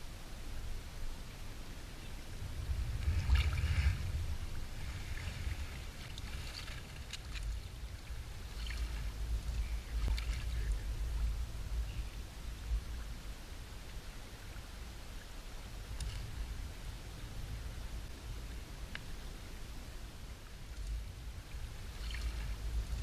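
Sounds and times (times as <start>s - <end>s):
low rumble of moving water: 0.0s - 23.0s
water splashing and gurgling: 2.3s - 11.9s, 20.5s - 23.0s.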